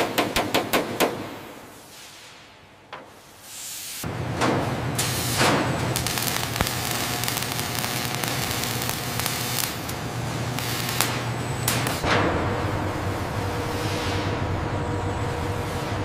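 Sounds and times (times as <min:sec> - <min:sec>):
welding arc crackling: 0:03.9 - 0:12.1
low machine hum: 0:04.1 - 0:16.0.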